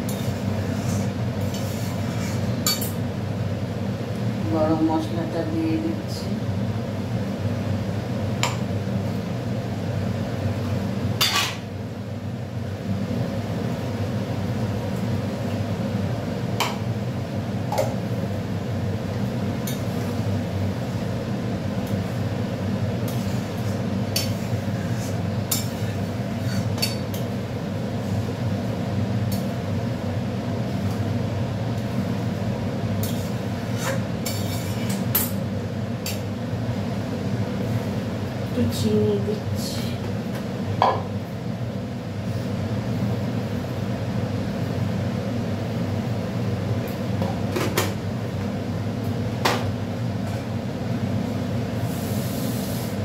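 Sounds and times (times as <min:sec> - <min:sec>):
steady low hum: 0:00.0 - 0:53.0
metal spatula scraping a pan: 0:00.1 - 0:02.6, 0:33.0 - 0:35.0.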